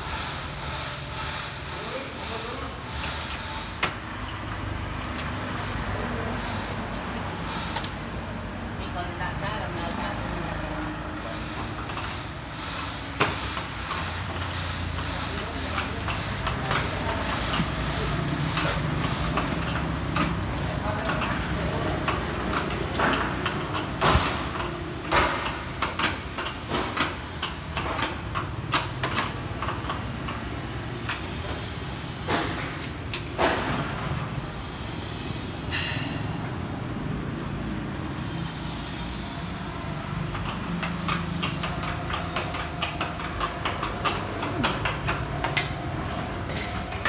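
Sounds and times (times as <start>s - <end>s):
low hum of traffic: 0.0s - 47.0s.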